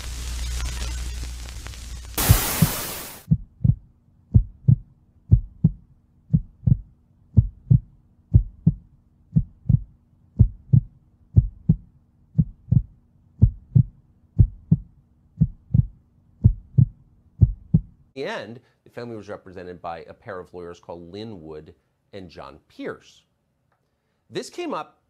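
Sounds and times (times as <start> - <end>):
heartbeat thumps: 2.2 - 18.0.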